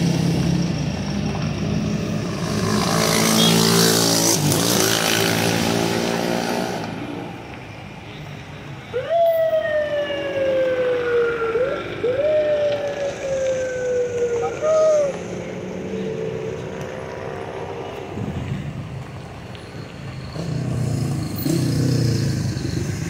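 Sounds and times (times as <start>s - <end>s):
wailing siren-like tone: 8.8s - 16.8s.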